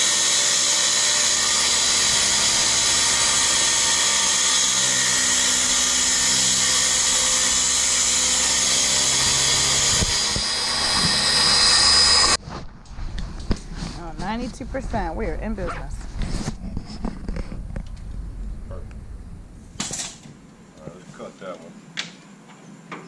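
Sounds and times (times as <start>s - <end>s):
circular saw cutting plywood: 0.0s - 12.4s.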